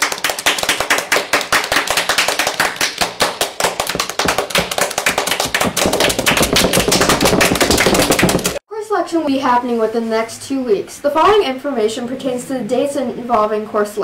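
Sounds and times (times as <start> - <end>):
rapid sharp taps: 0.1 - 8.6.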